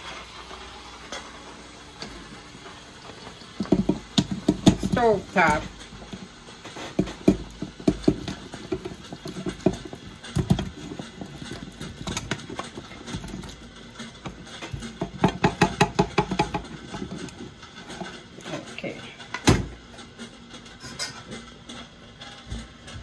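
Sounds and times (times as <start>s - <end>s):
meat and pan clattering into metal pot: 2.0s - 19.8s.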